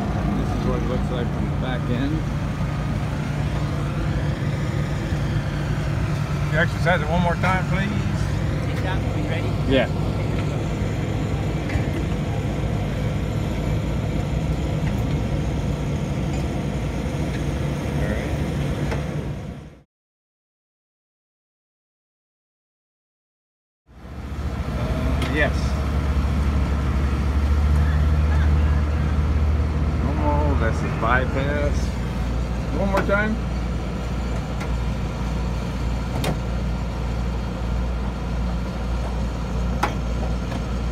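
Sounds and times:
machinery droning: 0:00.0 - 0:19.8.

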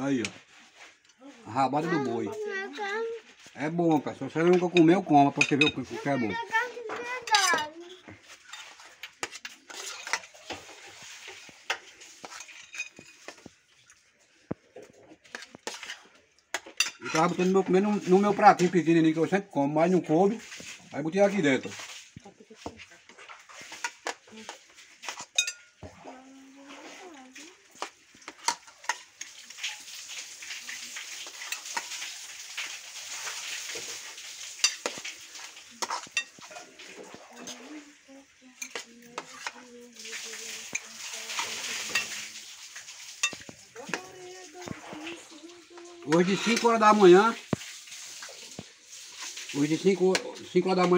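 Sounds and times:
wet stirring of food: 0:00.0 - 0:50.9
cutlery clinking and scraping plates: 0:04.3 - 0:06.1, 0:06.9 - 0:13.5, 0:14.8 - 0:18.9, 0:21.6 - 0:26.0, 0:27.7 - 0:29.9, 0:30.7 - 0:32.1, 0:33.2 - 0:37.6, 0:38.6 - 0:39.6, 0:40.7 - 0:42.3, 0:43.1 - 0:44.1, 0:46.1 - 0:47.2
cutlery clinking on plates: 0:04.5 - 0:05.9, 0:08.4 - 0:10.7, 0:11.7 - 0:13.5, 0:16.5 - 0:17.5, 0:25.0 - 0:26.0, 0:34.6 - 0:35.1, 0:35.8 - 0:37.2, 0:43.2 - 0:43.5.

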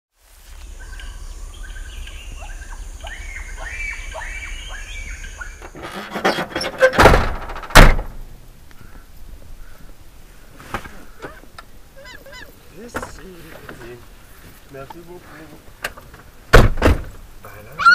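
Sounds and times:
steady high hiss: 0:00.1 - 0:17.9
chirping calls: 0:00.6 - 0:05.8, 0:08.7 - 0:12.9
heavy thuds: 0:05.1 - 0:08.4, 0:15.7 - 0:17.3.

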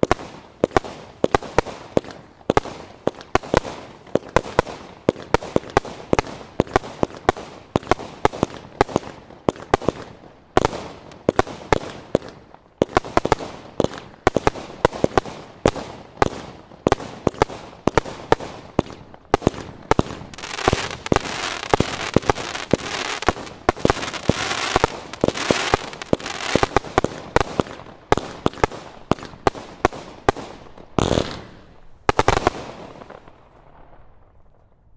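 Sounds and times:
firework cake shots firing: 0:11.4 - 0:33.2.

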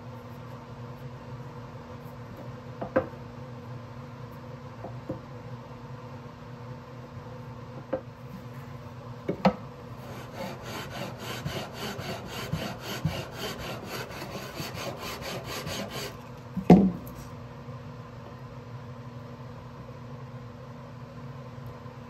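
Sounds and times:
sanding block rubbing wood: 0:10.0 - 0:16.2.

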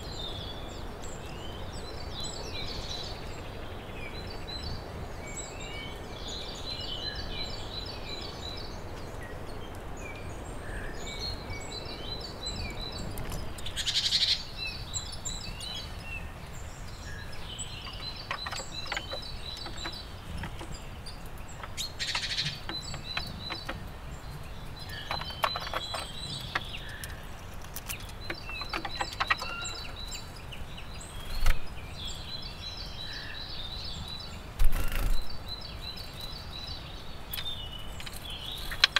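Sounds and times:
songbirds singing: 0:00.0 - 0:38.9
sharp clicks and taps: 0:21.6 - 0:23.9.

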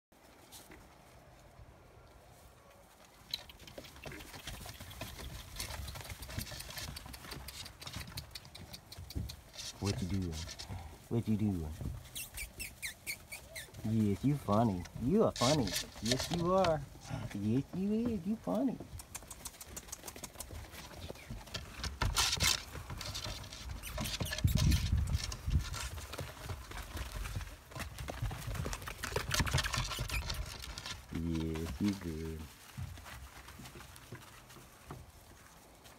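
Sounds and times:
puppies scrambling in straw: 0:00.2 - 0:35.9
pattering steps and clicks: 0:03.2 - 0:10.8, 0:11.7 - 0:35.9
footsteps in straw: 0:08.9 - 0:28.6, 0:30.2 - 0:35.9
faint puppy squeaks: 0:12.0 - 0:13.9, 0:23.6 - 0:25.0, 0:29.8 - 0:30.5.

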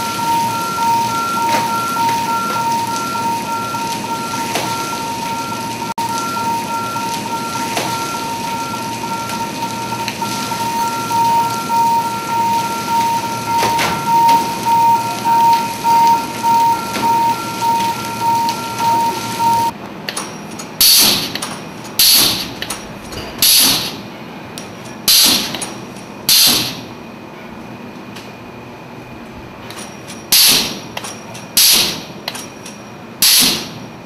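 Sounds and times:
machine whining and pulsing: 0:00.0 - 0:19.8.

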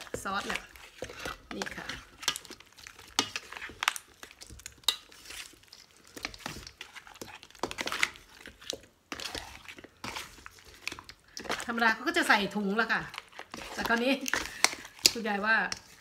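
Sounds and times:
spatula knocking and scraping metal bowl: 0:00.0 - 0:05.5, 0:13.0 - 0:16.0.

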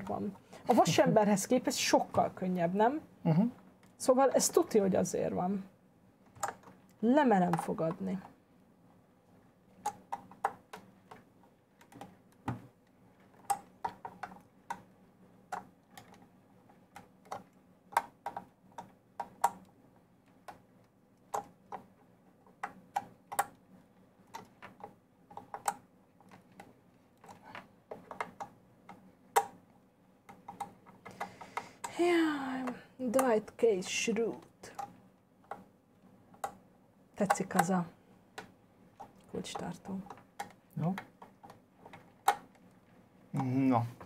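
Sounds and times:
plastic parts clicking: 0:06.2 - 0:08.3, 0:15.5 - 0:19.7, 0:24.2 - 0:32.0, 0:34.3 - 0:35.7, 0:37.2 - 0:37.8, 0:38.4 - 0:42.8.

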